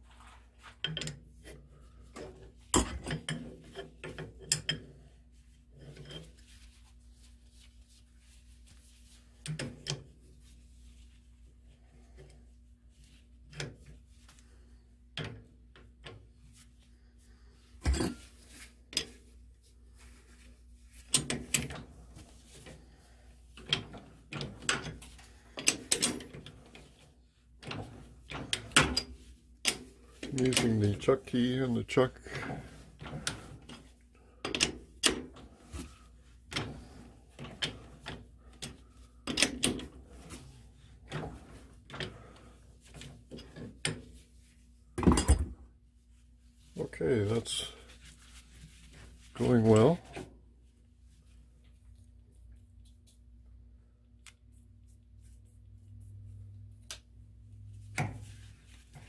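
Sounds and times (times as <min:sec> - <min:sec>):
metallic clicks and clunks of tools: 0:00.8 - 0:01.2, 0:25.6 - 0:26.4.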